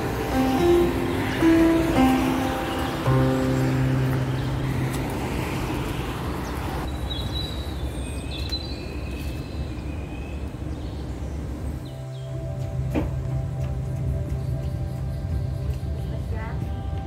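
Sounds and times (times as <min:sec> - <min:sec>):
road traffic rush: 0:00.0 - 0:17.0.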